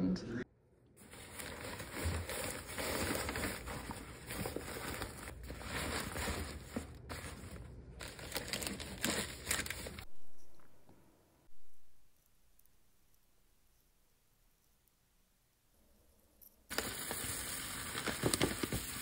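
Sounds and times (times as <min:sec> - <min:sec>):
clothes and bag fabric rustling: 0:01.0 - 0:10.1.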